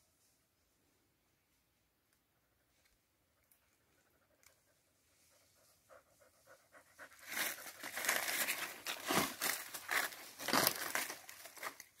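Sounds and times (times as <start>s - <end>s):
dry leaves crunching: 7.2s - 12.0s.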